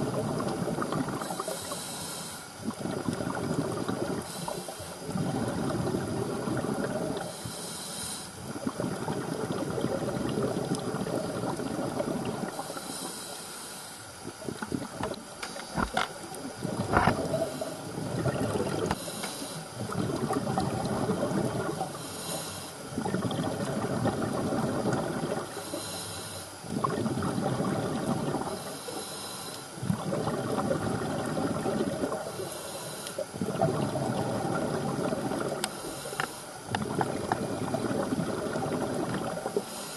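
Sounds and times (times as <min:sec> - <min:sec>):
diver breathing through regulator: 0:01.2 - 0:02.9, 0:06.8 - 0:08.5, 0:12.5 - 0:14.1, 0:18.8 - 0:19.8, 0:21.9 - 0:22.9, 0:25.5 - 0:26.6, 0:28.0 - 0:30.4, 0:31.5 - 0:33.4, 0:34.1 - 0:38.0, 0:39.5 - 0:39.9.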